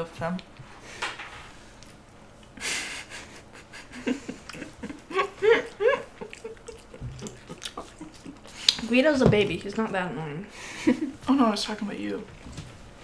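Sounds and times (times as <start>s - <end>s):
person giggling and laughing: 2.6s - 8.6s.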